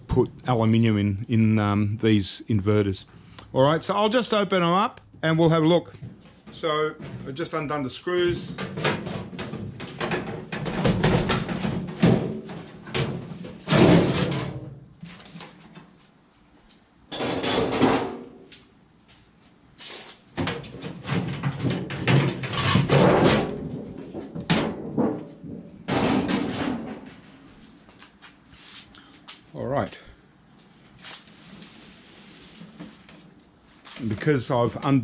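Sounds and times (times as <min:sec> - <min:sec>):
sheet metal clanking and scraping: 0:17.1 - 0:18.3, 0:20.4 - 0:27.2.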